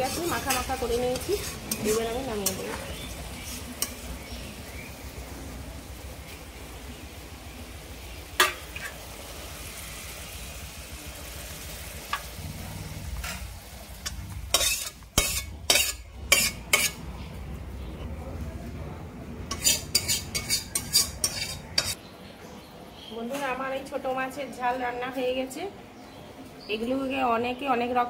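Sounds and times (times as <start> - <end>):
utensil scraping a pan: 0.0 - 4.2, 13.2 - 17.0, 19.5 - 22.0
curry sizzling in a pan: 0.0 - 17.0, 19.5 - 22.0
utensil clinking on pan: 13.2 - 17.0, 19.5 - 22.0.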